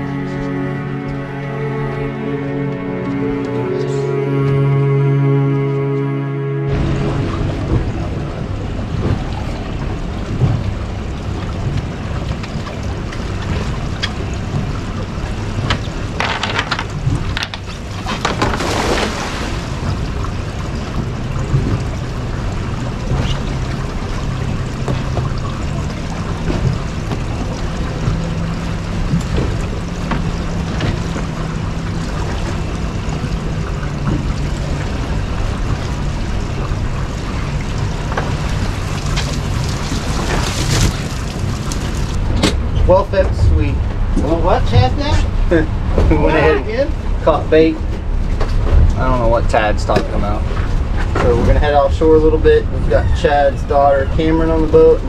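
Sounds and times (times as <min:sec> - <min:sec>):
outboard motors idling: 0:00.0 - 0:55.0
water and wind noise: 0:00.0 - 0:55.0
water trickling: 0:06.6 - 0:55.0
net splashing into water: 0:18.1 - 0:20.2, 0:38.4 - 0:42.2.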